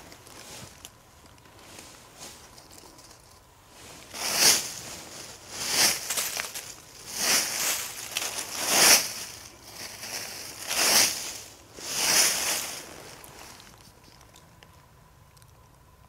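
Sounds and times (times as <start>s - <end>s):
dry leaves crunching: 0.0s - 14.0s.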